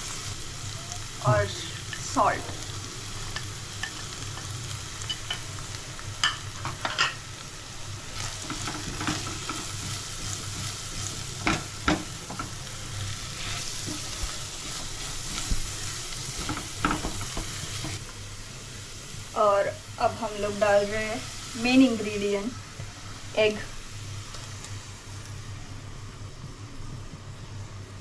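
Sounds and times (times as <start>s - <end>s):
sauce sizzling in a frying pan: 0.0s - 27.9s
spoon scraping and knocking pan: 8.4s - 12.6s, 13.4s - 18.0s.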